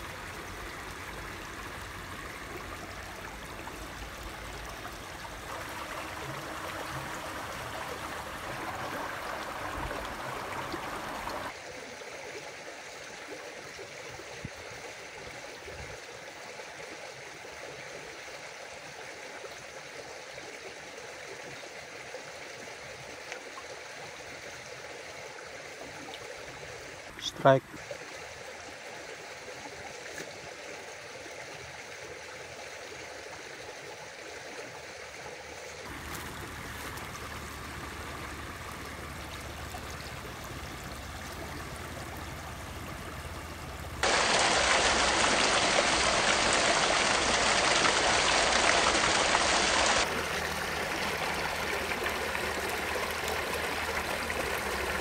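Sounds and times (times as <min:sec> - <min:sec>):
stream trickling over its bed: 0:00.0 - 0:55.0.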